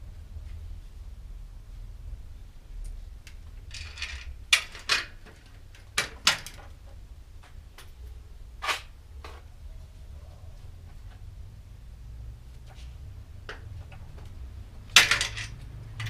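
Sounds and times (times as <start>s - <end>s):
tools clattering and knocking: 3.2s - 7.9s, 13.4s - 16.0s.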